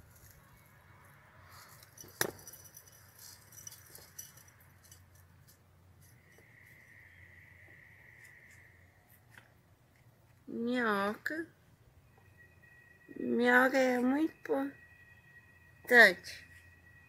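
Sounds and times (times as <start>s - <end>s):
faint high tone: 10.5s - 17.0s.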